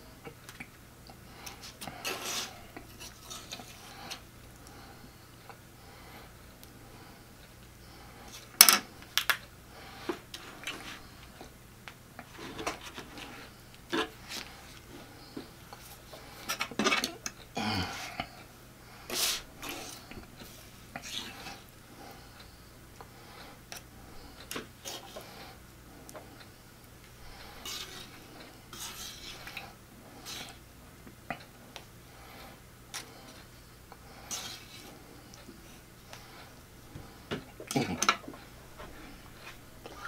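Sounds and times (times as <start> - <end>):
metal fork scraping a tray: 2.0 - 4.2, 27.6 - 29.6.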